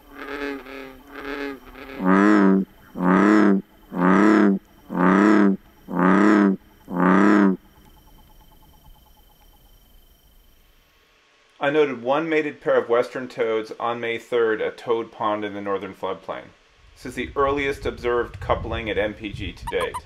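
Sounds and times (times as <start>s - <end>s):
bullfrog croaking: 0.0s - 9.8s, 19.6s - 20.0s
faint toads chirping: 0.0s - 10.8s, 19.6s - 20.0s.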